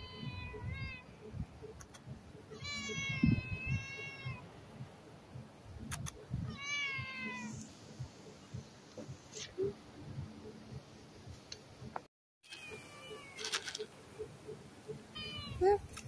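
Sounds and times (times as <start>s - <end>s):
cat meowing loudly: 0.0s - 1.0s, 2.6s - 4.4s, 6.5s - 7.6s, 12.5s - 13.5s, 15.2s - 15.8s
soft low thumps: 0.0s - 12.1s.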